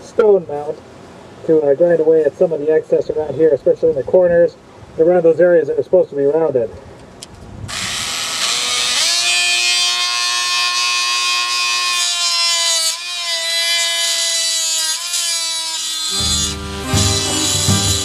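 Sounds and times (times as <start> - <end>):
rotary tool grinding metal: 7.7 - 18.0.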